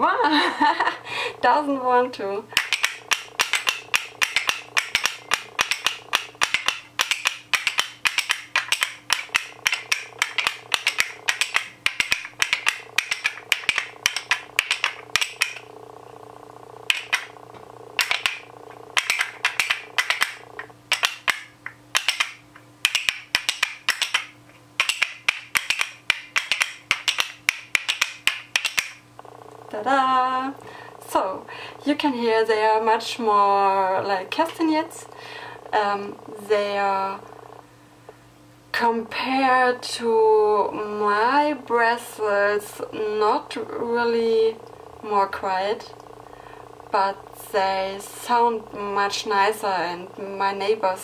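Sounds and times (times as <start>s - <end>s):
wooden finger cymbals clacking: 2.6s - 15.7s, 16.9s - 17.4s, 18.0s - 29.0s.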